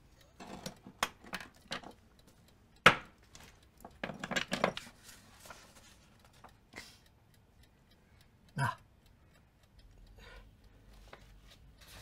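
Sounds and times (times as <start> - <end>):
clicks and clatter of objects: 3.3 - 6.5.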